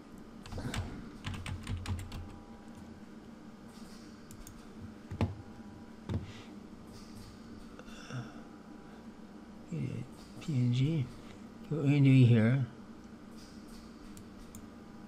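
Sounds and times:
computer keyboard typing: 0.4s - 2.3s.

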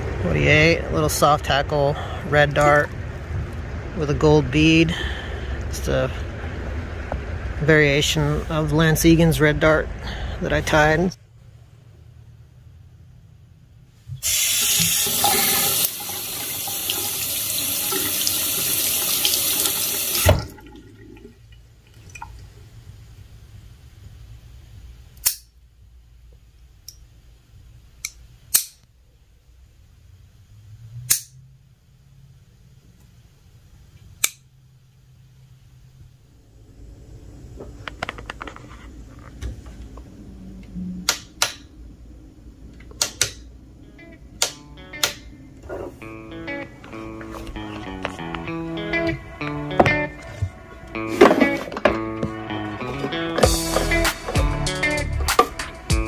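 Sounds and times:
water running into sink: 14.2s - 22.5s.

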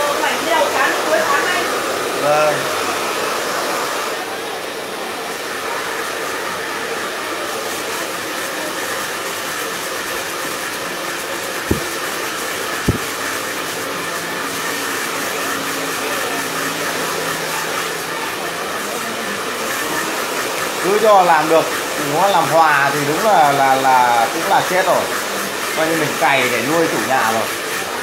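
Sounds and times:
hair dryer blowing: 0.0s - 28.0s
short thumps: 11.7s - 11.9s, 12.9s - 13.1s.

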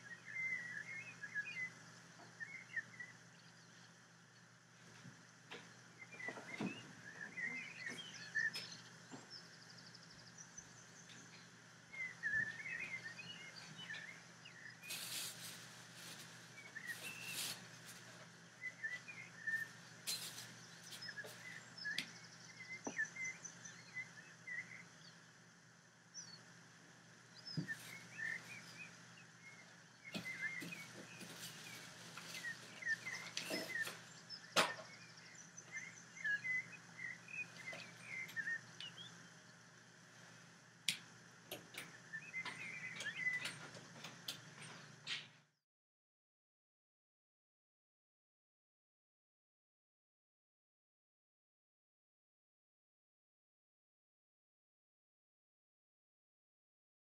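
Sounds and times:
small birds chirping: 0.0s - 45.6s
steady low hum: 0.0s - 45.6s.

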